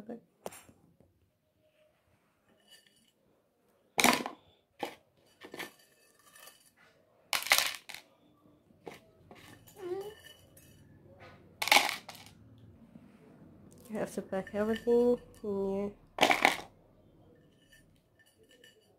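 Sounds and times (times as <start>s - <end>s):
spices clattering into ceramic bowl: 14.2s - 16.8s.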